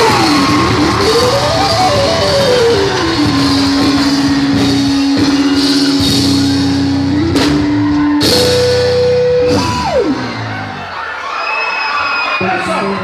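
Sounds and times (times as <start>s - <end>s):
drum kit with cymbal crashes: 0.0s - 10.2s
electric bass: 0.0s - 11.0s.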